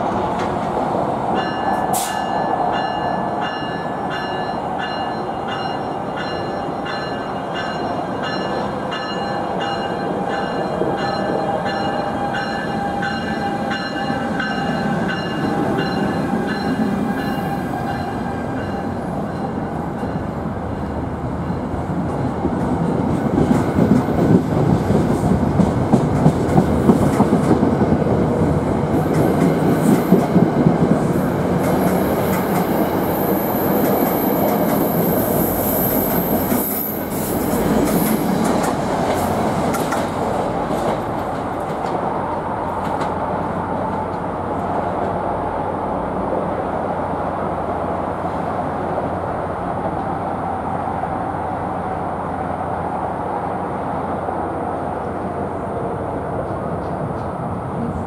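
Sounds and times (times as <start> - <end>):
train coaches clickety-clack: 0.0 - 20.5, 21.3 - 45.4, 56.2 - 58.0
train rumble: 0.0 - 58.0.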